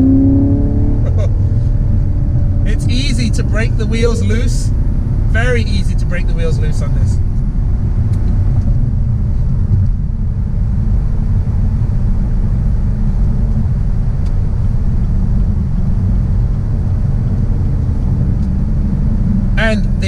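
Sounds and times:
car engine low rumble: 0.0 - 20.0.

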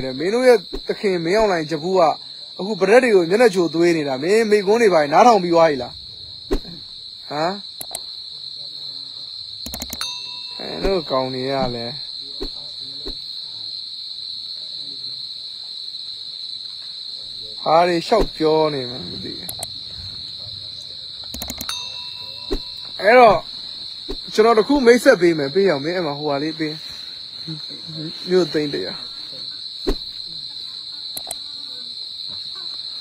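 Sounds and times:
insects trilling: 0.0 - 33.0
man's voice: 17.6 - 22.1.

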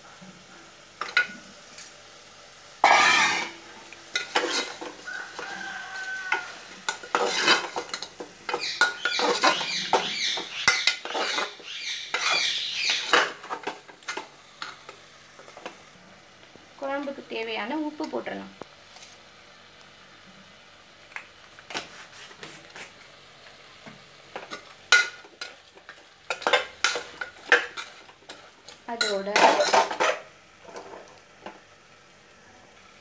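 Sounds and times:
spoon scraping metal pot: 2.8 - 5.5, 6.3 - 14.2.

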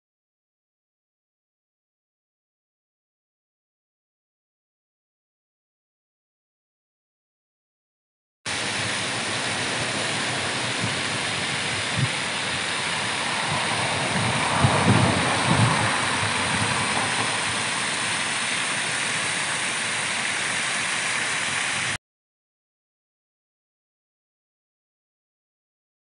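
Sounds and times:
water rushing down a weir: 8.5 - 22.0.

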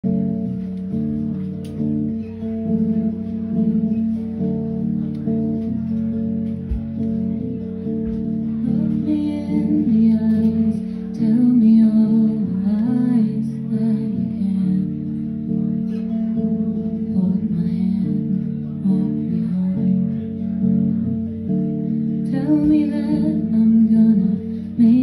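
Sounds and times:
woman singing: 8.5 - 20.7, 22.1 - 25.0.

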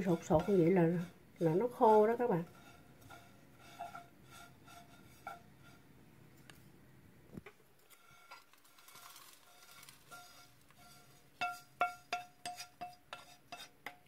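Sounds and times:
wooden utensil scratching in pan: 0.0 - 5.9, 7.8 - 14.0
soft rustle of food sliding: 7.8 - 11.3.

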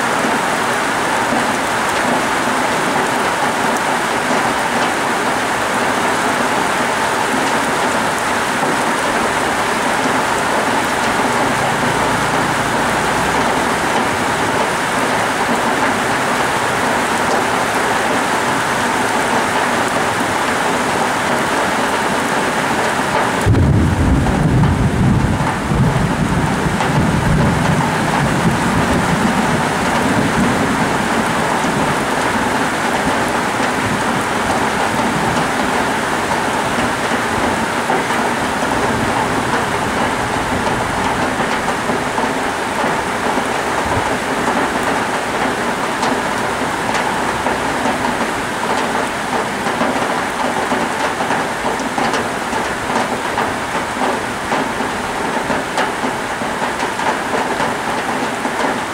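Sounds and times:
heavy rain falling: 0.0 - 58.9
thunder rumbling: 8.2 - 17.8, 23.2 - 45.8.

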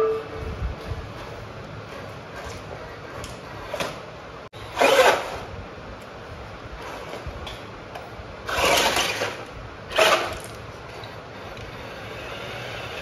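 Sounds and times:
toy tyres scrabbling: 1.2 - 5.5, 8.4 - 13.0
toy electric motor whirring: 8.5 - 10.6, 11.4 - 13.0.

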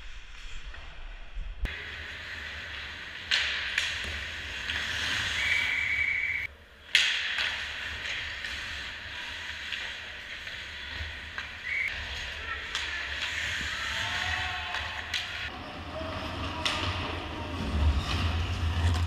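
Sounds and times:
skates scraping on ice: 1.8 - 19.0.

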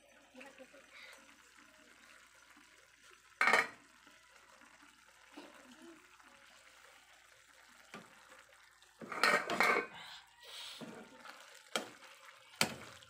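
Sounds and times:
pan simmering with bubbling hiss: 0.0 - 13.0
stirring clatter against pan and shells: 3.4 - 3.8, 9.0 - 9.9, 10.8 - 13.0.

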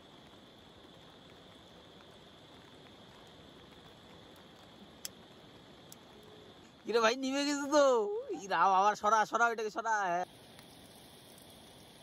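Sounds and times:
light rain hissing: 0.0 - 12.0.

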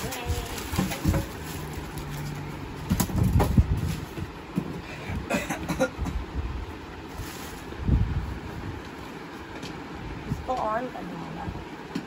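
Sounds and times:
plastic wrap rustling: 0.0 - 4.5, 7.1 - 7.9.

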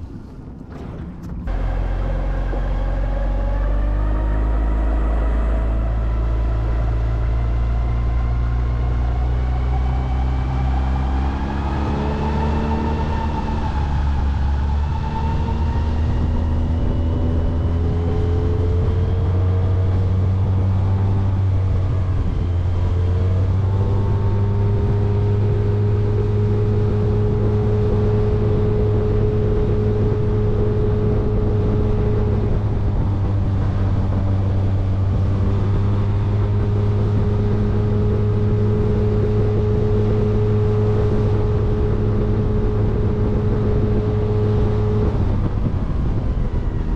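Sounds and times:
outboard motor running: 0.7 - 7.6.

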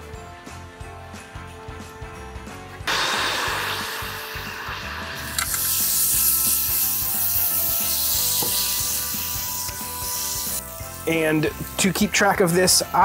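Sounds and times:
steak sizzling on a grill: 2.9 - 12.3.

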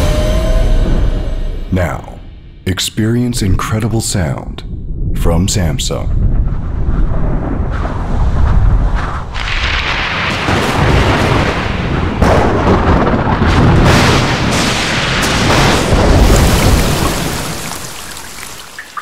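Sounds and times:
rumbling thunder: 4.6 - 18.8
sharp thunderclap: 4.7 - 18.8
rushing storm hiss: 5.2 - 19.0.

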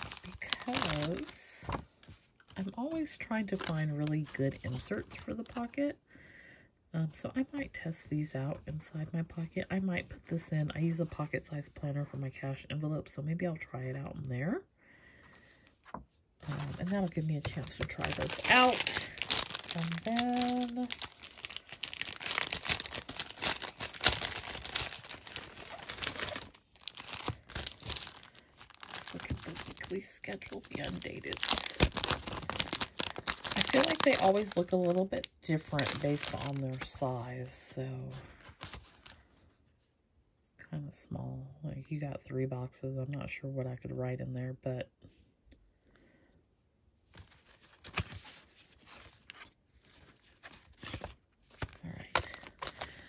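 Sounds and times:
packaging and paper crinkling: 0.0 - 5.7, 15.9 - 37.1, 38.3 - 39.2, 47.1 - 53.0.

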